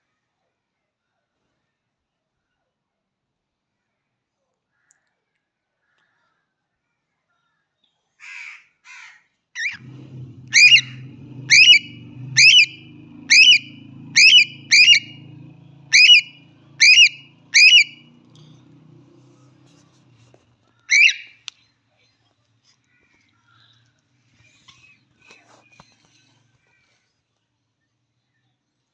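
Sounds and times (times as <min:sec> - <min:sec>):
cockatiel shrill calls: 0:09.6 - 0:09.8, 0:10.5 - 0:15.2, 0:15.9 - 0:18.0, 0:20.9 - 0:21.4.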